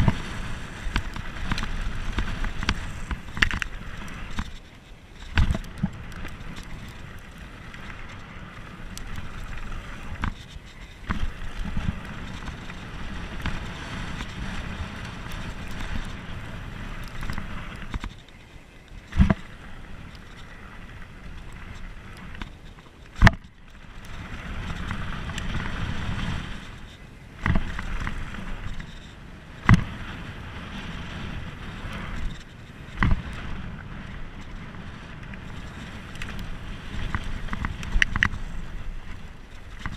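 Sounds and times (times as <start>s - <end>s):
wind on microphone: 0.0s - 18.2s, 19.0s - 39.9s
bike knocking over bumps: 5.2s - 6.0s.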